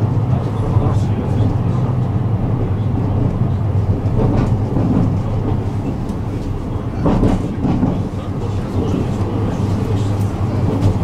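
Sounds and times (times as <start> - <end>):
tram rumbling on rails: 0.0 - 11.0
tram running gear knocks: 7.0 - 8.2, 10.2 - 11.0.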